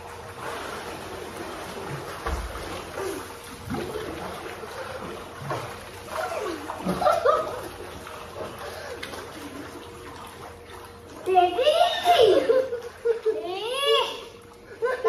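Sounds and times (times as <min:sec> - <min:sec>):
pool water splashing: 0:00.0 - 0:15.0.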